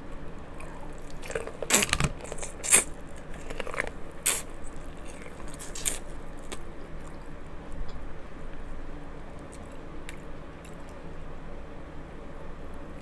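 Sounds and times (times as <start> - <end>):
chewing and wet squishing: 0.5 - 8.0, 9.4 - 11.0
crab shell cracking: 0.6 - 6.7.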